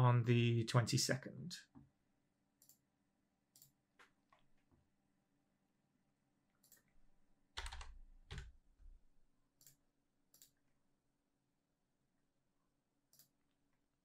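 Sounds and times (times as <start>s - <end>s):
mouse clicks: 2.6s - 2.8s, 9.6s - 10.6s, 13.1s - 13.4s
keyboard key presses: 7.6s - 8.5s.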